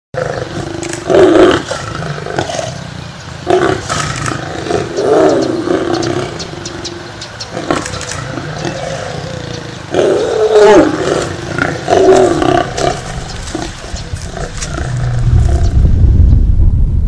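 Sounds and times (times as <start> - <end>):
lion roaring: 0.2 - 15.9
low rumble: 12.6 - 17.0.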